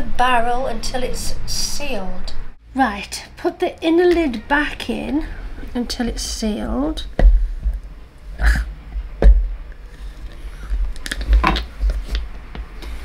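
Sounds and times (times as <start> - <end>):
knocks and thumps of plastic barrel: 9.2 - 9.6.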